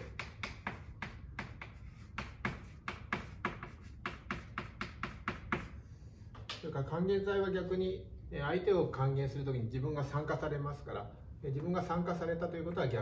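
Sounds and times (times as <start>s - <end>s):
chalk writing on a blackboard: 0.0s - 6.1s.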